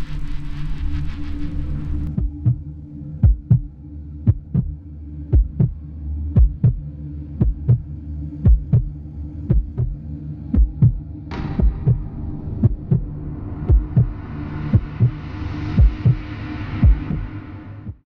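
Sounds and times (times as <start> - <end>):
low steady drone: 0.0 - 18.0
heartbeat thumps: 2.1 - 5.8, 6.4 - 6.8, 7.4 - 11.0, 11.6 - 12.0, 12.6 - 13.1, 13.7 - 14.1, 14.7 - 15.2, 15.8 - 16.2, 16.8 - 17.3.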